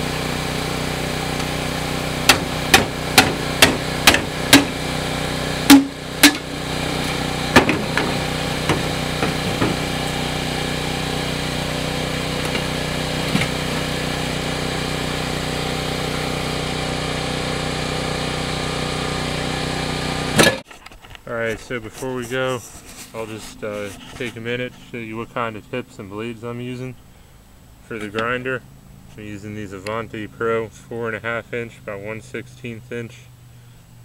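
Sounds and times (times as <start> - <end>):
steady machine hum: 0.0 - 20.6, 21.7 - 34.0
metal knocks on steel shell: 5.7 - 6.5.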